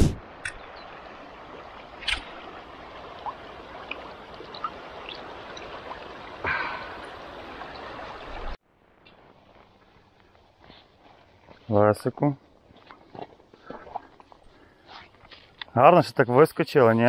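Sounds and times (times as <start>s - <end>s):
water splashing: 0.0s - 8.6s
river water flowing over stones: 0.2s - 8.6s.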